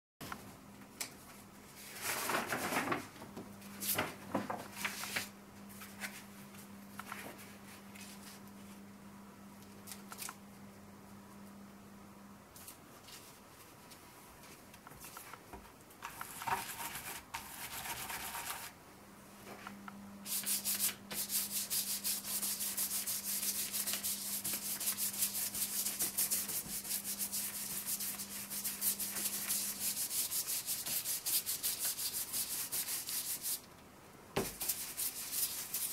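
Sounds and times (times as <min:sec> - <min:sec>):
stencil brush dabbing: 0:20.3 - 0:33.6
taps and rustles: 0:34.4 - 0:34.7.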